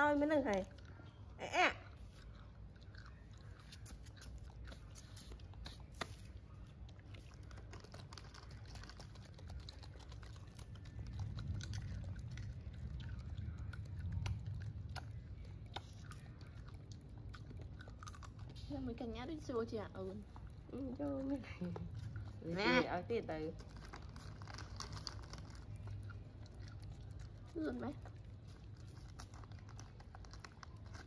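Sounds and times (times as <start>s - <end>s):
baby monkey chewing clicks: 2.0s - 18.8s
low rumble: 6.4s - 30.8s.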